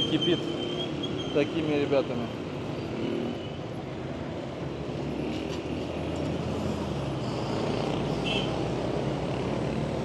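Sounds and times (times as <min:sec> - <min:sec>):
traffic rumble on busy road: 0:00.0 - 0:10.0.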